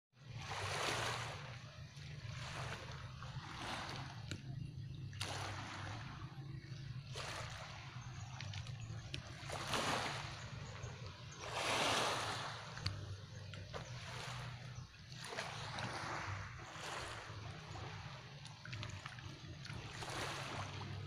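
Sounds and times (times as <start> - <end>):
waves on pebble shore: 0.3 - 1.6, 2.3 - 4.2, 5.2 - 6.2, 9.4 - 13.0, 13.8 - 18.2, 19.8 - 21.0
steady low hum: 0.4 - 21.0.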